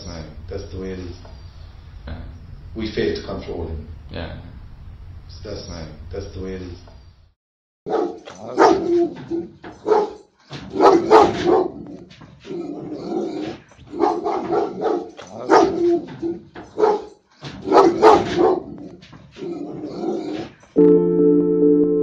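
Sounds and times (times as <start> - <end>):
dog barking: 7.9 - 20.4.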